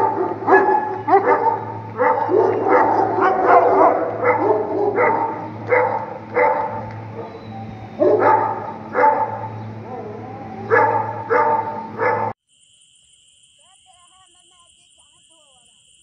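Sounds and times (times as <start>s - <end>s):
large dogs barking: 0.0s - 12.4s
steady low hum: 0.0s - 12.4s.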